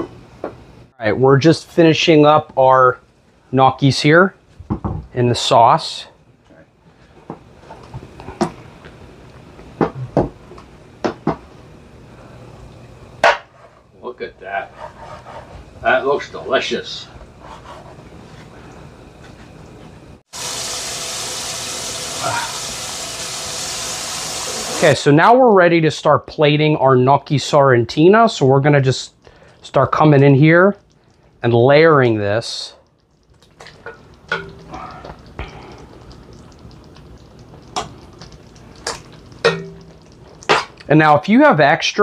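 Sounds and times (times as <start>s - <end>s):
water running: 20.3s - 25.1s, 28.3s - 42.0s.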